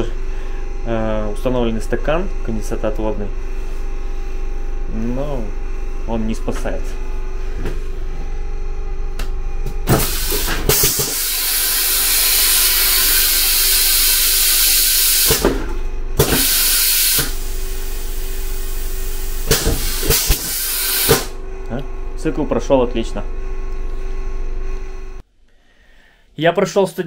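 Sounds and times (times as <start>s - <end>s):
vacuum toilet flush hissing: 9.9s - 15.4s, 16.2s - 21.3s
pneumatic valves clicking: 9.9s - 17.5s, 18.5s - 21.4s.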